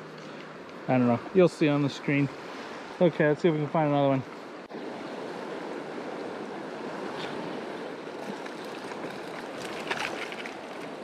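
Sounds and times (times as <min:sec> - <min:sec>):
river current rushing: 0:00.0 - 0:11.0
water splashes: 0:04.7 - 0:11.0.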